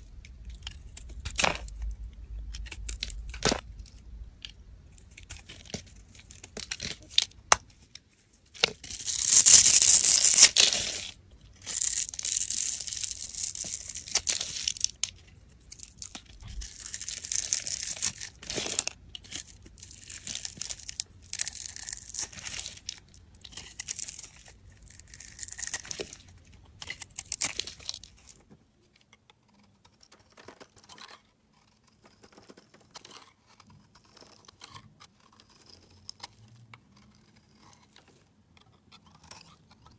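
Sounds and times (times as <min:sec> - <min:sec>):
knife blade scraping soap: 0:29.0 - 0:39.9.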